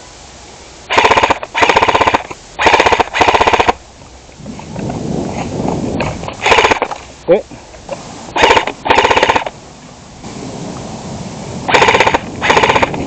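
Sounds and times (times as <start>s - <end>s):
airsoft rifle bursts: 0.9s - 3.8s, 6.4s - 7.0s, 8.4s - 9.5s, 11.7s - 13.0s.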